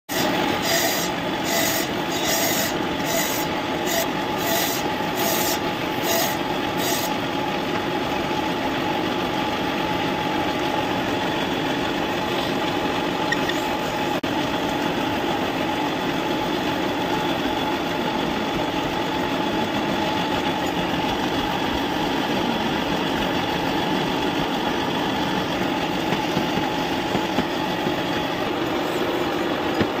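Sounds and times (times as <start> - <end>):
gouge cutting wood hissing: 0.1 - 7.2
wood lathe running: 0.1 - 14.2.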